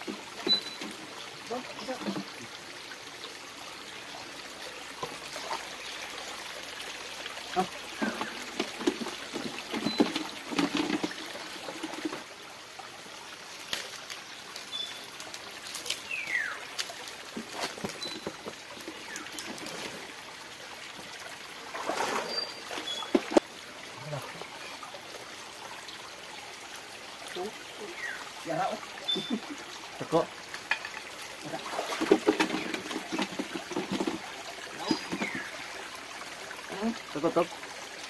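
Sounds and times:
creek water trickling: 0.0s - 38.0s
small splashes: 13.4s - 20.3s, 21.6s - 24.8s, 30.5s - 37.5s.

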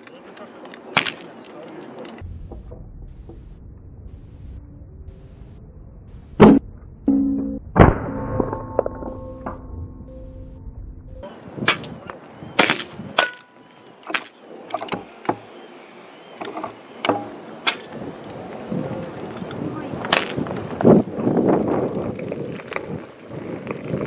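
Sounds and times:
rough rustling noise: 17.6s - 24.0s.

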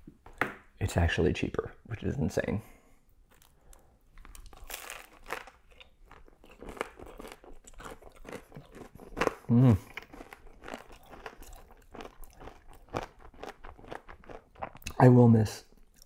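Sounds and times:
crunchy chewing: 3.3s - 15.0s
person vocal sound: 9.5s - 9.9s.

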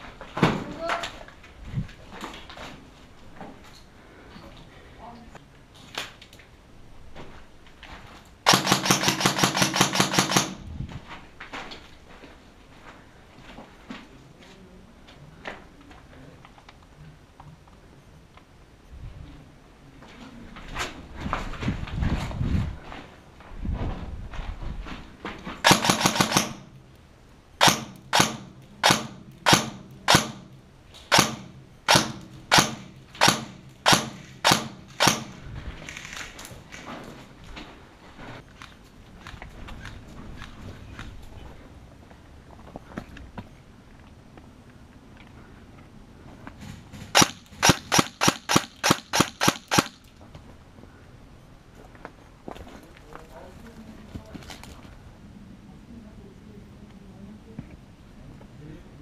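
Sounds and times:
airsoft gun shots: 8.5s - 10.7s, 25.6s - 26.8s, 27.6s - 35.4s, 47.1s - 50.0s
airsoft rifle full-auto burst: 8.5s - 10.7s, 25.6s - 26.7s, 47.2s - 50.0s.

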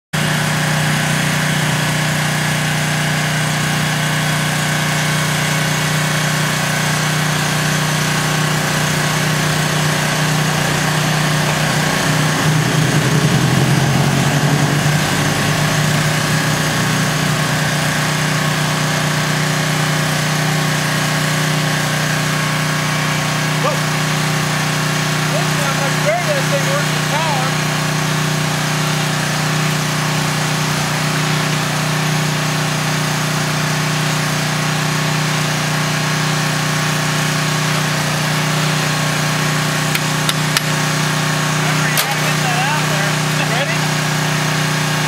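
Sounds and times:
truck engine idling: 0.2s - 45.0s.

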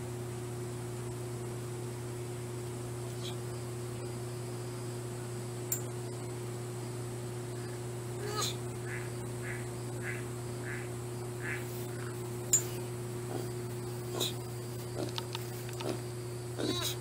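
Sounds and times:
low electrical hum with hiss: 0.0s - 17.0s
click: 15.1s - 15.9s.

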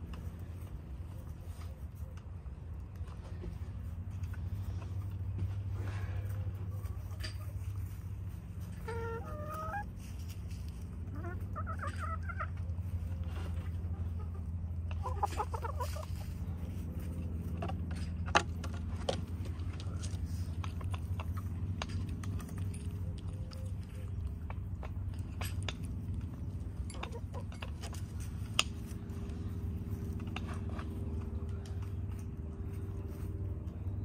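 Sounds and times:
steady low hum: 0.0s - 34.0s
hen clucking: 6.2s - 17.0s, 20.9s - 30.4s.

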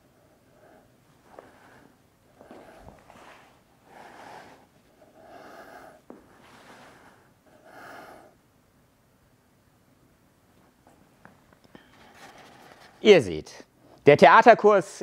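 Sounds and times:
person breathing: 0.0s - 8.4s.

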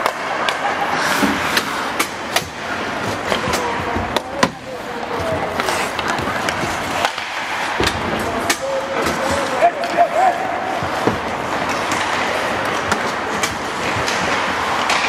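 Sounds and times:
hockey sticks clacking on ice: 0.0s - 15.0s
skate blades scraping ice: 4.7s - 7.8s.

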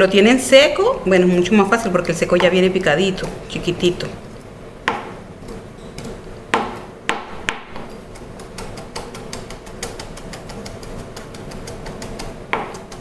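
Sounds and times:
knife chopping on plastic board: 4.8s - 13.0s.

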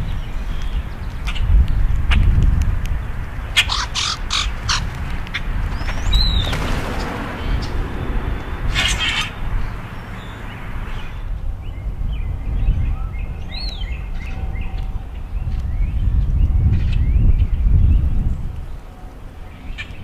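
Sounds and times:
grackles calling: 3.5s - 7.8s, 8.4s - 11.2s
low rumble: 5.5s - 13.5s.

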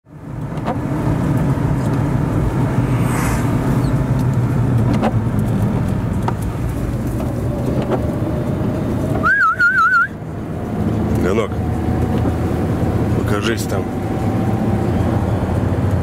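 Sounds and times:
car engine and tyres drone: 0.1s - 16.0s.

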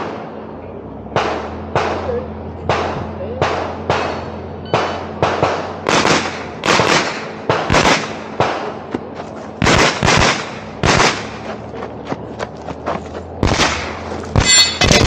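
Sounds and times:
gunshots echoing: 1.1s - 8.9s, 9.6s - 11.6s, 13.4s - 15.0s.

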